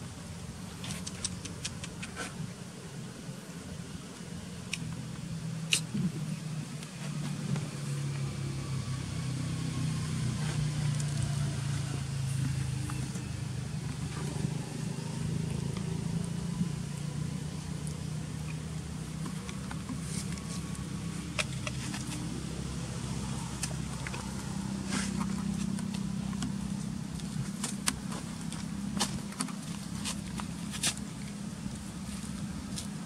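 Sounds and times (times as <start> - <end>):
low engine hum: 0.0 - 33.0.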